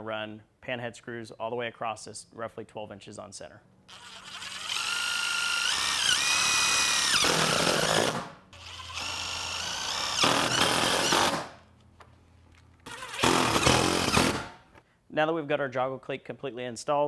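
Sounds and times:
drill driving screws into metal: 3.9s - 11.6s, 12.8s - 14.6s.

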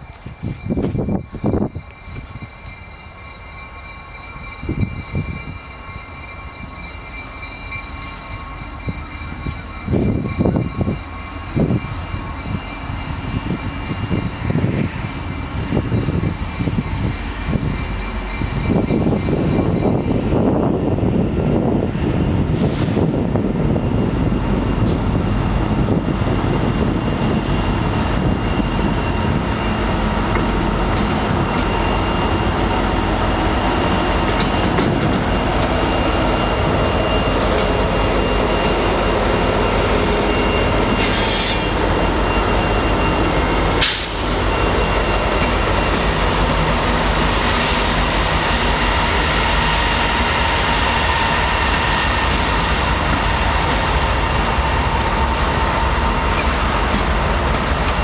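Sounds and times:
diesel locomotive engines running: 0.0s - 58.0s
train wheels rumbling on rail: 0.0s - 58.0s
thin wheel squeal: 39.7s - 43.4s.

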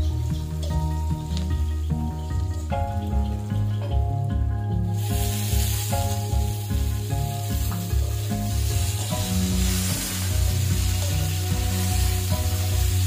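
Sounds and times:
background music with beat: 0.0s - 13.0s
vegetables sizzling in oil: 0.0s - 13.0s
spatula stirring in wok: 4.9s - 13.0s.

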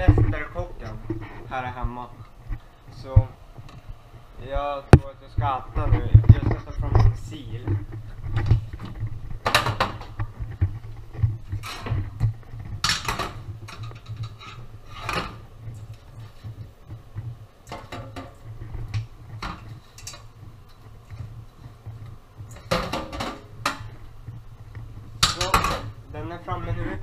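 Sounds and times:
pots and utensils clattering: 6.4s - 16.5s, 17.6s - 21.8s, 22.5s - 24.0s, 25.2s - 26.0s.

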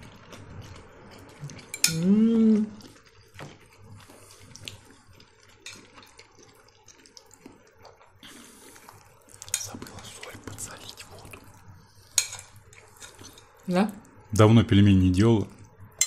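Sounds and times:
person humming: 1.9s - 2.8s
water dripping and splashing: 2.8s - 8.1s
dishes clinking: 12.2s - 13.5s.

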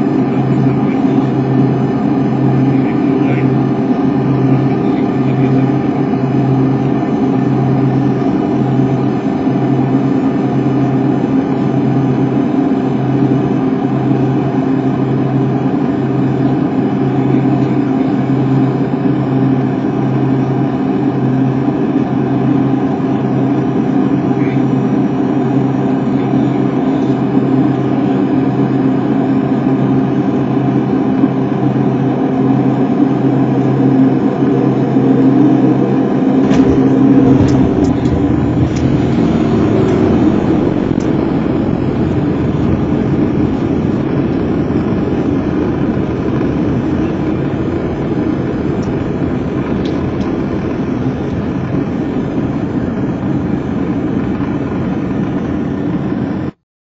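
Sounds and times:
propeller aircraft engine drone: 0.0s - 56.6s
wheels rumbling on runway: 32.6s - 56.6s.

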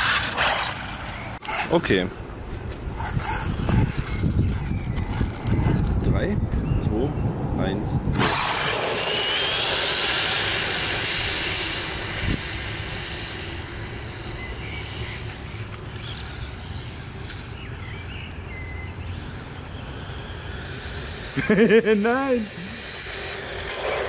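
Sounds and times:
rc cars tyres and motor hissing: 0.0s - 1.8s, 8.1s - 24.0s
rising motor whine: 8.2s - 24.0s.

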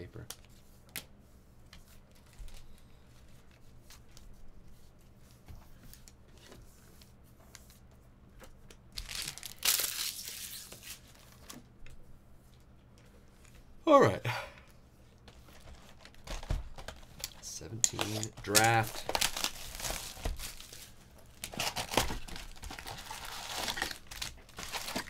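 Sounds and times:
wrapper crinkling and tearing: 9.0s - 11.5s, 15.5s - 25.0s
trading cards clicking: 17.3s - 19.0s.

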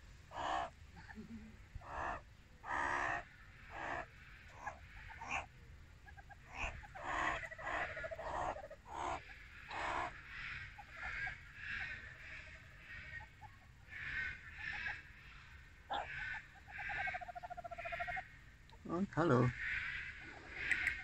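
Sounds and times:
meerkats low pulsing trills: 0.0s - 18.9s, 19.5s - 21.0s
meerkats short harsh calls: 0.3s - 1.2s, 1.8s - 18.4s, 19.5s - 21.0s.

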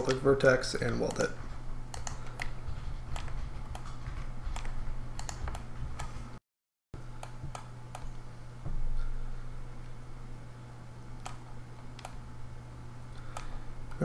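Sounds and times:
steady low hum: 0.0s - 6.4s, 7.0s - 14.0s
computer keyboard and mouse clicks: 1.9s - 6.2s, 11.2s - 12.2s.

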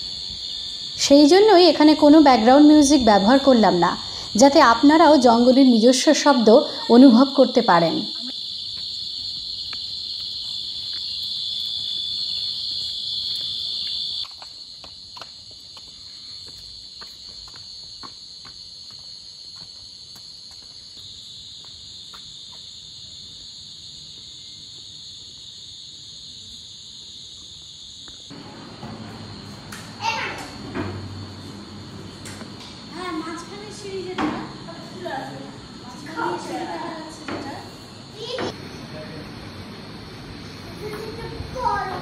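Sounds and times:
crickets chirring: 0.0s - 42.0s.

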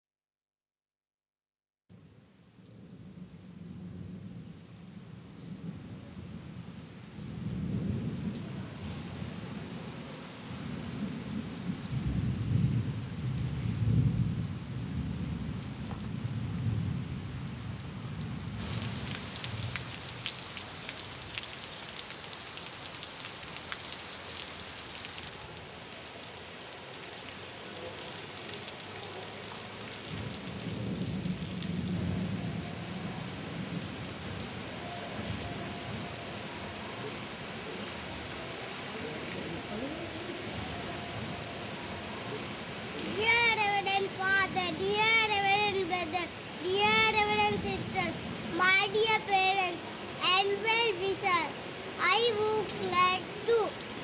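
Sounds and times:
rain falling: 1.9s - 54.0s
thunder rumbling: 10.5s - 21.5s, 30.0s - 37.3s, 39.0s - 49.9s.

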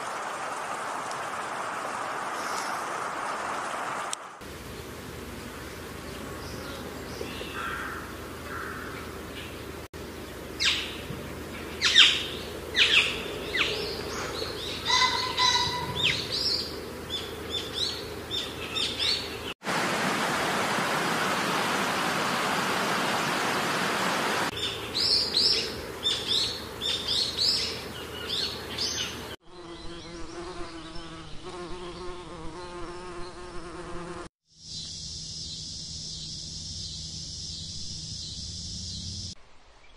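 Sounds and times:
birds chirping: 4.5s - 19.6s, 21.3s - 33.6s
pulsing insect buzz: 24.5s - 39.4s.

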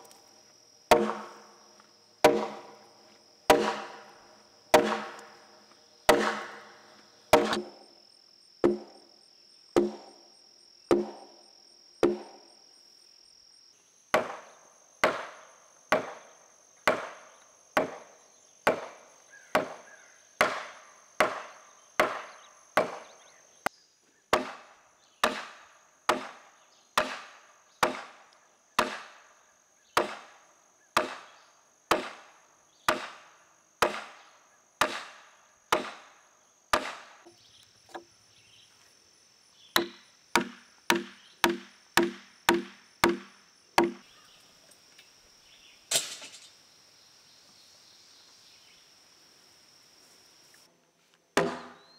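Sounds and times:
insects buzzing: 0.0s - 51.9s
tool blows driving wedges into timber: 0.9s - 1.4s, 2.2s - 2.8s, 3.5s - 4.1s, 4.7s - 5.3s, 6.1s - 6.7s, 7.3s - 7.8s, 25.2s - 26.4s, 27.0s - 28.2s, 34.8s - 36.1s, 36.7s - 37.2s, 39.8s - 44.0s, 51.4s - 51.9s.

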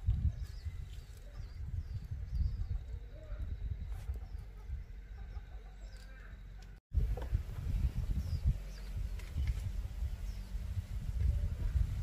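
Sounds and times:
wind rumble on microphone: 0.0s - 5.6s, 6.9s - 12.0s
faint bird chirp: 0.2s - 6.8s.

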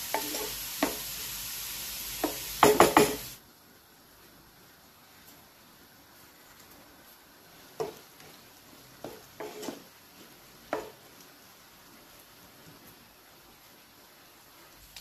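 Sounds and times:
wooden spoon scraping a pan: 0.0s - 1.0s, 7.6s - 11.2s
vegetables sizzling in oil: 0.0s - 3.4s, 7.0s - 15.0s.

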